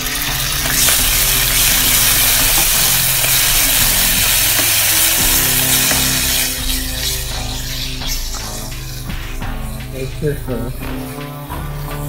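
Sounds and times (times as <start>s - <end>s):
spatula stirring in a pan: 0.0s - 7.8s
soy sauce sizzling in a hot pan: 0.0s - 8.9s
background music: 0.0s - 12.0s.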